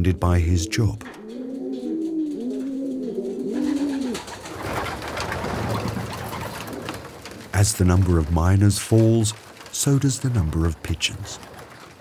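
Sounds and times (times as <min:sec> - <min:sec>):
pigeons cooing: 0:00.0 - 0:07.5.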